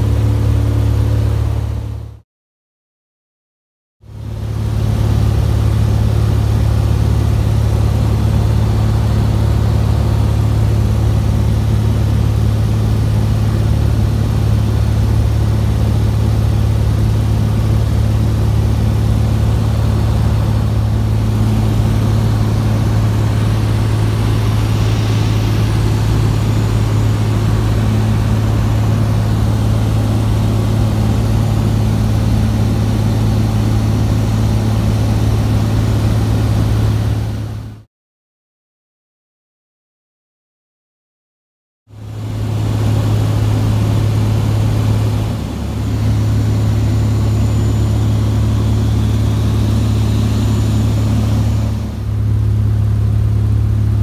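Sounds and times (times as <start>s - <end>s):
propeller plane engine droning: 0.0s - 2.2s, 4.0s - 37.9s, 41.9s - 54.0s.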